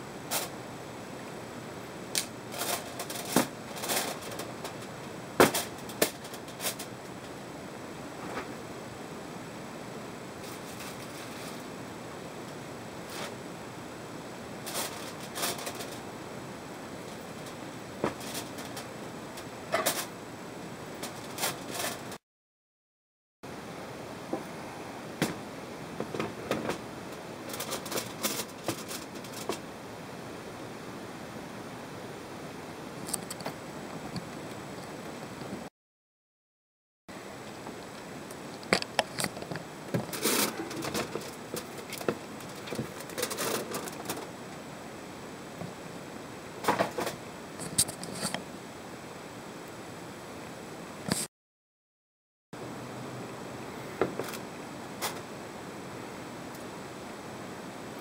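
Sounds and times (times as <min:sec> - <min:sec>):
steady hiss: 0:00.0 - 0:22.2
aluminium foil crinkling: 0:27.5 - 0:29.6, 0:38.6 - 0:44.3.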